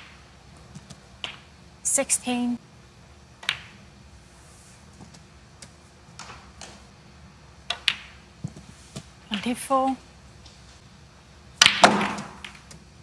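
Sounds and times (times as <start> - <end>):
snooker balls clicking: 0.0 - 1.6, 3.4 - 3.9, 7.6 - 9.1, 11.6 - 12.9.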